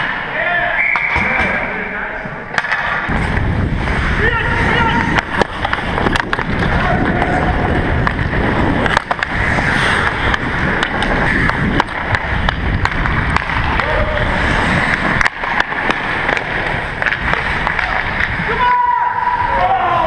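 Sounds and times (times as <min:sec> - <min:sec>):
skates scraping ice: 0:00.0 - 0:20.0
sticks striking puck: 0:02.5 - 0:03.3, 0:04.7 - 0:19.9.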